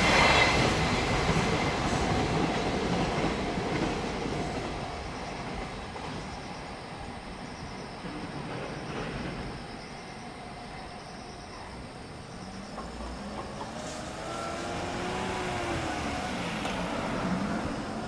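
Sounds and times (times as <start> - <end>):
car passing by: 12.4 - 18.0.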